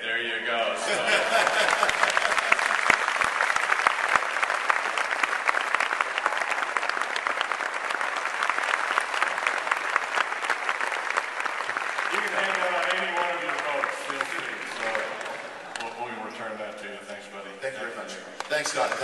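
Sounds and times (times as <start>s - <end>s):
audience applauding: 1.1s - 16.0s, 18.4s - 19.0s
loud claps close by: 1.6s - 15.9s.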